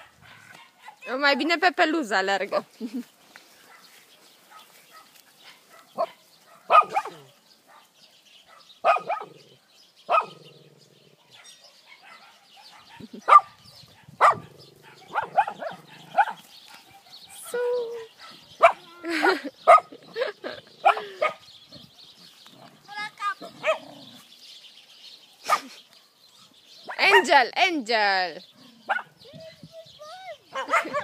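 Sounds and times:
dogs barking: 0.0 - 1.6, 3.6 - 21.5, 23.3 - 24.2, 26.8 - 27.4, 28.8 - 29.2, 30.5 - 31.0.

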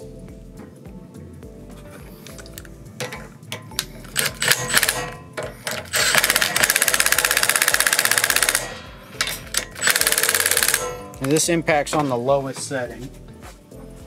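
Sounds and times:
impact driver hammering: 3.8 - 11.4.

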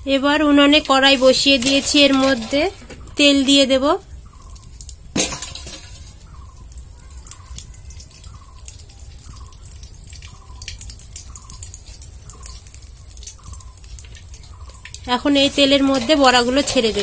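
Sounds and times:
faint crackles: 0.0 - 17.0
drip-like plink: 6.3 - 15.1.

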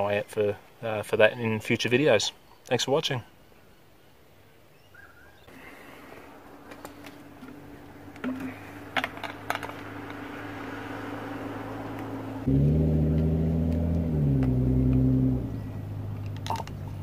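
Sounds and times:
loud deep droning: 7.3 - 16.4.

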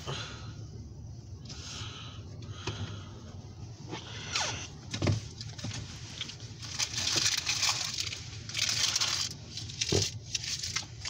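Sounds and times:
low steady hum: 0.0 - 11.0
rustling and crinkling: 3.9 - 11.0.

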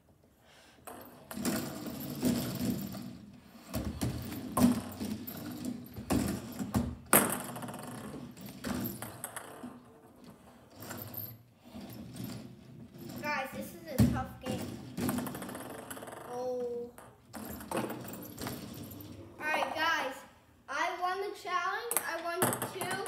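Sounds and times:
foosball rods sliding and spinning: 0.8 - 19.8.

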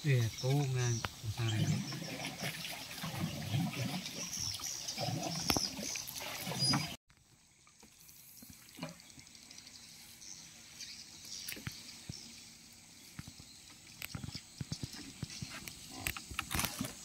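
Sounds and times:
quiet river ambience: 0.0 - 17.0
river water slapping boat hull: 0.3 - 7.0.

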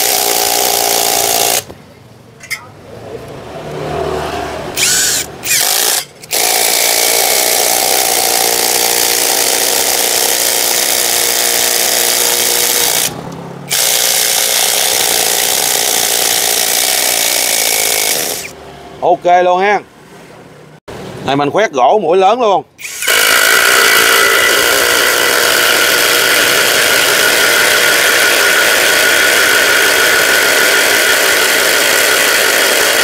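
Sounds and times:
impact driver driving screws into wood: 0.0 - 1.7, 4.8 - 18.5, 22.8 - 33.0.

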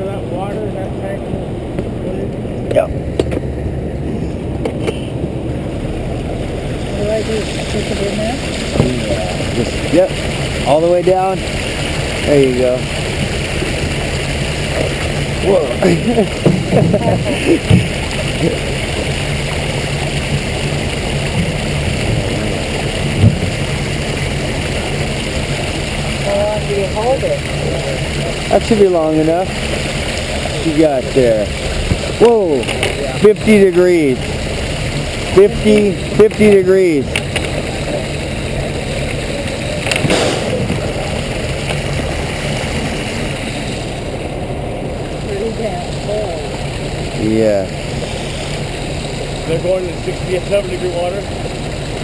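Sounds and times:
truck mechanical hum: 0.0 - 52.0
water churning in tank: 0.0 - 52.0
low bump: 16.2 - 18.2, 39.8 - 43.0.

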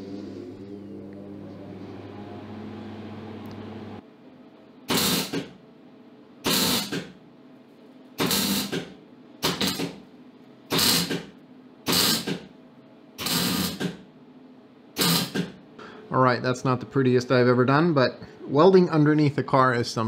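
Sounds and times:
welder arc buzzing: 4.9 - 5.6, 6.4 - 7.2, 8.2 - 10.0, 10.7 - 12.5, 13.2 - 14.1, 15.0 - 15.6.

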